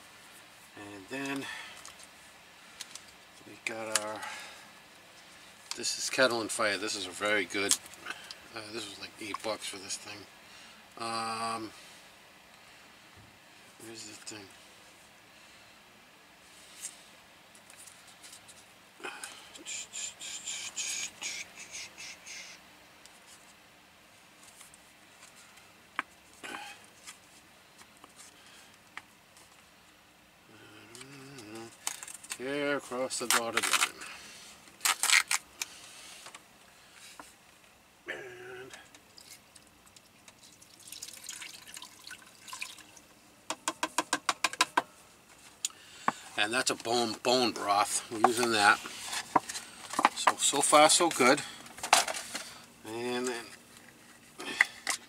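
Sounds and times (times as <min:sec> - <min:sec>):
broth pouring and glugging: 0:40.4 - 0:43.0.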